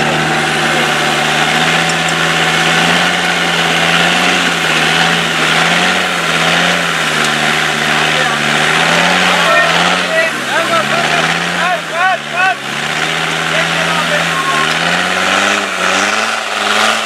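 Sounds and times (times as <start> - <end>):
truck engine idling: 0.0 - 17.0.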